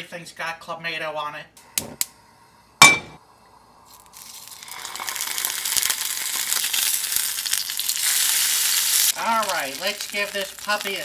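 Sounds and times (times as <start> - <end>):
steak sizzling in a frying pan: 3.9 - 11.0.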